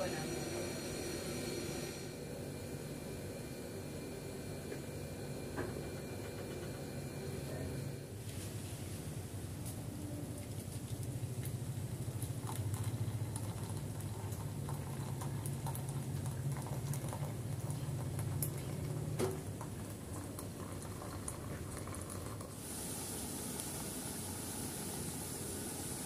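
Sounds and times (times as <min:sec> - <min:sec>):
tea pouring into glass cup: 0:10.4 - 0:25.1.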